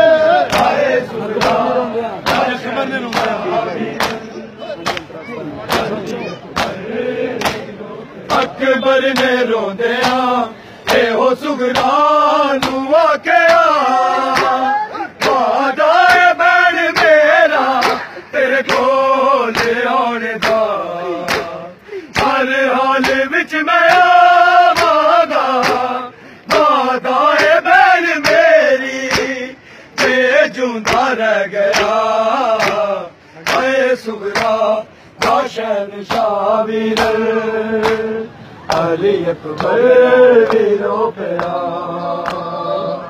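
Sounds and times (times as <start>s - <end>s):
men chanting in unison: 0.0s - 43.0s
hands slapping chests: 1.4s - 3.4s, 4.0s - 5.1s, 5.7s - 6.0s, 6.6s - 6.8s, 7.4s - 7.7s, 10.0s - 10.3s, 13.4s - 14.6s, 15.2s - 15.5s, 16.9s - 18.1s, 20.4s - 20.6s, 21.3s - 21.6s, 25.6s - 25.9s, 26.5s - 26.8s, 31.7s - 32.0s, 32.6s - 33.7s, 34.3s - 34.6s, 35.2s - 35.5s, 37.8s - 38.1s.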